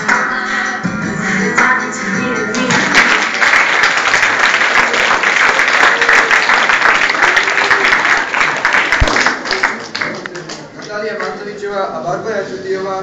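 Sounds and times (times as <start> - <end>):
audience applauding: 2.6 - 11.4.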